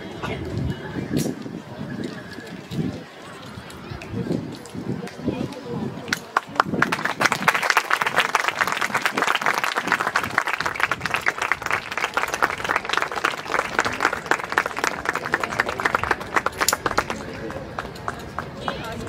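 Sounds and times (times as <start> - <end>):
audience applauding: 6.3 - 19.0.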